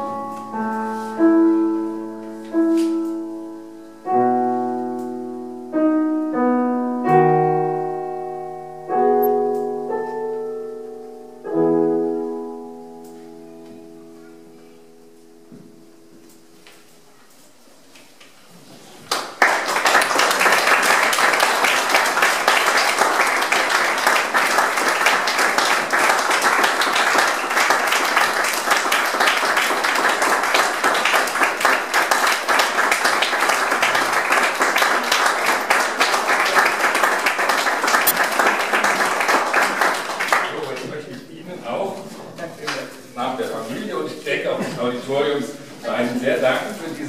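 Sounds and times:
audience applauding: 0:19.0 - 0:41.1.

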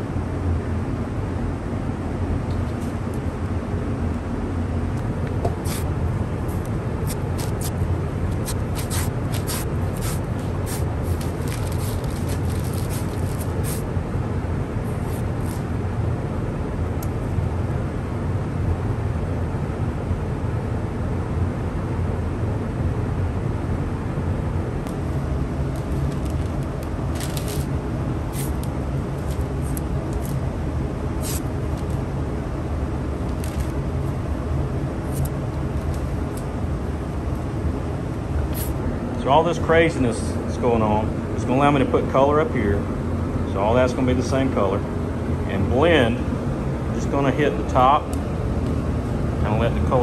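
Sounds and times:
low machine hum: 0:00.0 - 0:50.0
masking tape crackling: 0:06.5 - 0:13.8, 0:25.7 - 0:27.7.

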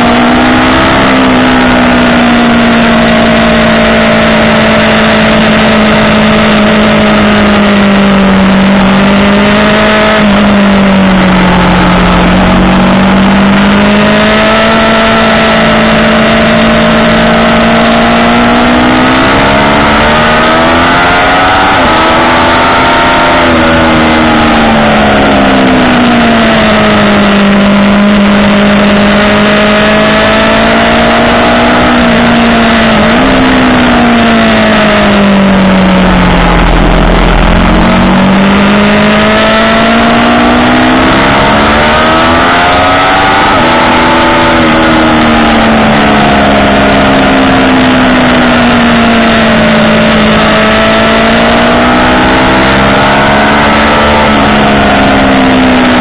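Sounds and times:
motorcycle engine revving: 0:00.0 - 0:56.0
wind rush: 0:32.7 - 0:40.4.

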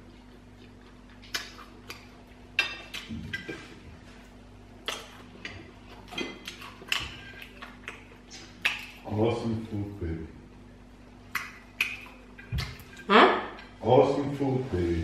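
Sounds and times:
wet chewing smacks: 0:00.0 - 0:03.6, 0:04.8 - 0:09.0, 0:11.3 - 0:13.0.

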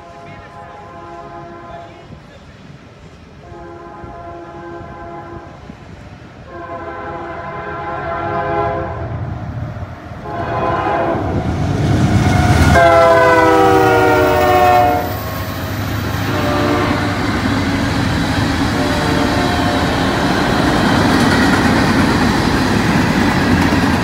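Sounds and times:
locomotive air horn blasts: 0:00.0 - 0:02.1, 0:03.4 - 0:05.6, 0:06.5 - 0:09.1, 0:10.2 - 0:11.4, 0:12.3 - 0:15.2, 0:16.2 - 0:17.4, 0:18.7 - 0:20.1
train rumbling: 0:00.0 - 0:24.0
freight cars rolling by: 0:09.2 - 0:24.0.

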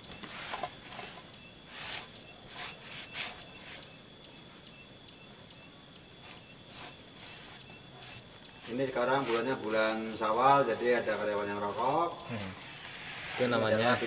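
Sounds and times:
insects chirping: 0:00.0 - 0:14.0
cloth rag rubbing on wall: 0:00.3 - 0:03.9, 0:06.2 - 0:10.3, 0:12.6 - 0:14.0.

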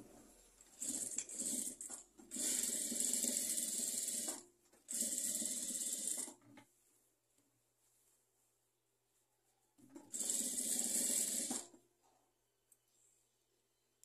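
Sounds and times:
sewing machine stitching: 0:00.6 - 0:06.6, 0:09.9 - 0:11.8.

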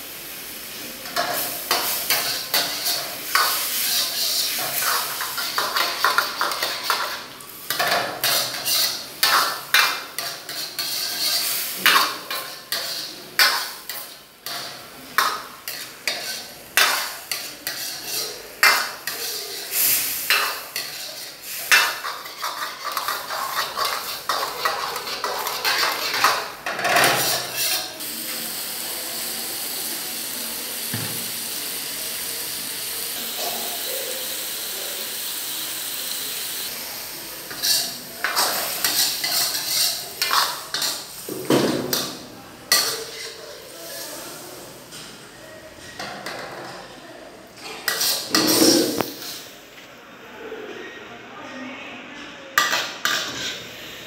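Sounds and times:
steady hiss: 0:00.0 - 0:25.2.

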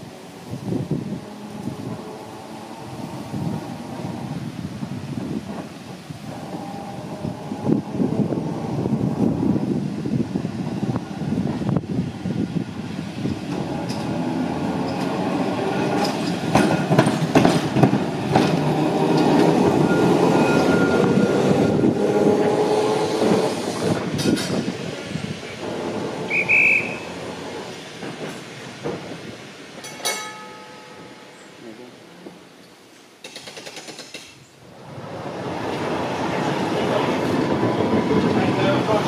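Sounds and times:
wheels clicking on rails: 0:00.0 - 0:31.2
electric tram passing: 0:00.0 - 0:39.0.

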